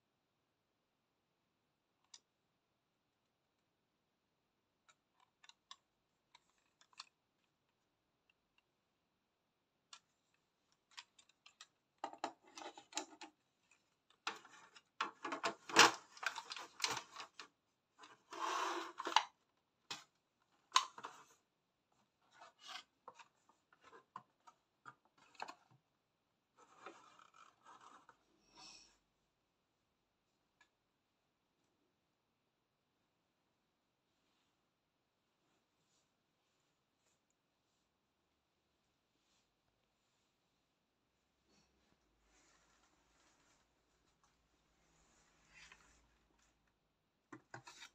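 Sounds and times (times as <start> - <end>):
plastic scraping and rubbing: 14.2 - 20.1, 26.6 - 28.3.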